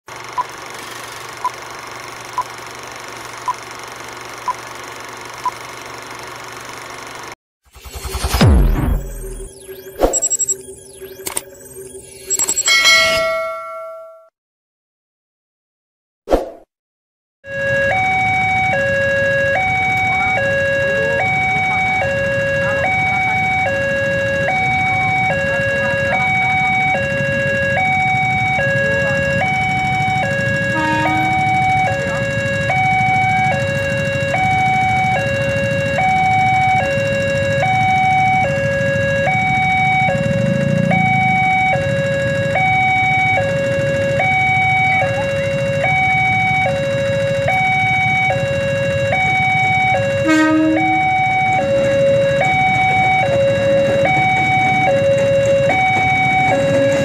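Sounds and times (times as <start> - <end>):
two-tone crossing alarm: 7.9 - 14.3, 17.4 - 57.0
low rumble of traffic: 17.5 - 57.0.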